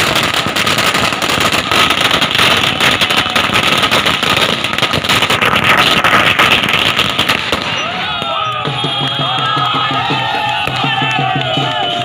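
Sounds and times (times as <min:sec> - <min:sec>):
firecrackers banging and crackling: 0:00.0 - 0:12.0.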